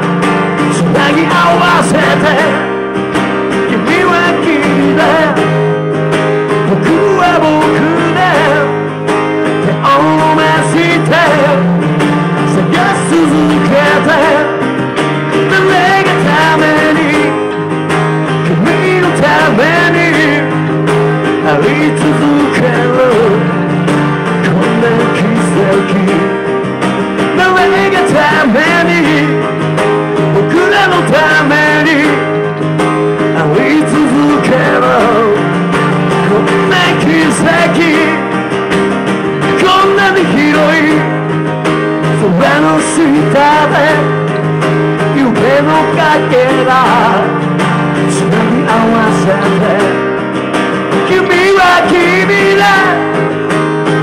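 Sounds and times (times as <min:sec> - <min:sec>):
person singing: 0:00.0 - 0:26.6, 0:27.2 - 0:54.0
electric bass: 0:00.0 - 0:54.0
strummed acoustic guitar: 0:00.0 - 0:54.0.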